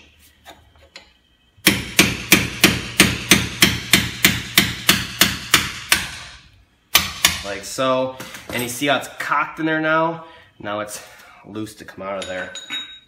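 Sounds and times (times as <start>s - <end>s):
hammer striking metal punch: 1.0s - 7.5s.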